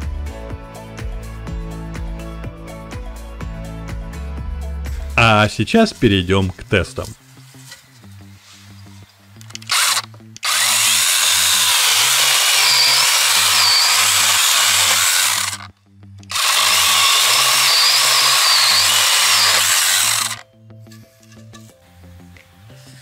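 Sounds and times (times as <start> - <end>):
mini chainsaw cutting wood: 9.5 - 15.7, 16.3 - 20.4.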